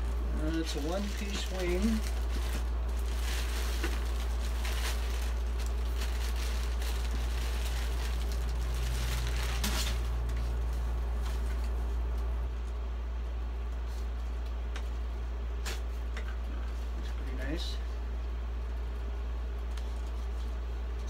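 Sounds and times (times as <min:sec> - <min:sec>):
plastic wrapping rustling: 0:00.0 - 0:12.7
steady low hum: 0:00.0 - 0:21.0.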